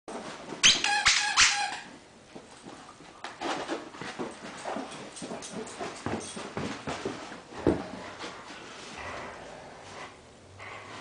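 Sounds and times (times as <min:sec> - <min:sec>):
squeaky toy squeaks: 0:00.6 - 0:01.9
dogs scuffling: 0:02.3 - 0:10.2
dogs growling: 0:07.6 - 0:11.0.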